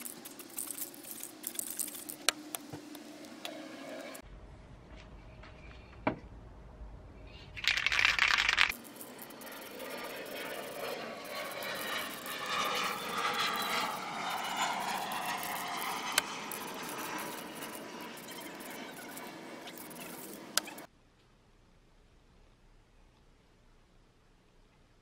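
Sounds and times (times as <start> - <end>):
wavering rush of noise: 6.4 - 20.9
spray can burst: 7.6 - 10.2.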